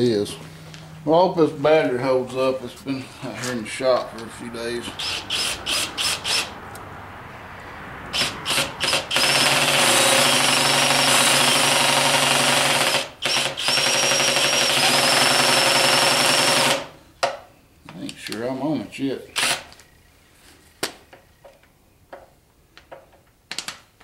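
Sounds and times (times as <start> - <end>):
cordless drill whining: 5.0 - 6.5, 8.2 - 16.9, 19.4 - 19.8.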